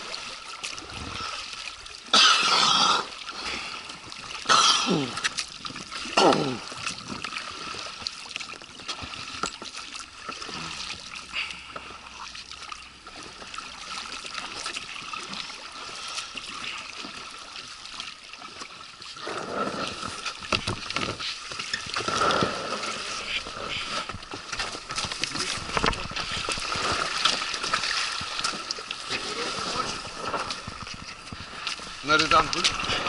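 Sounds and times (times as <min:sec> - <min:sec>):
small splashes: 0:00.0 - 0:33.0
water lapping against boat: 0:00.0 - 0:33.0
people climbing out of boat: 0:18.5 - 0:33.0.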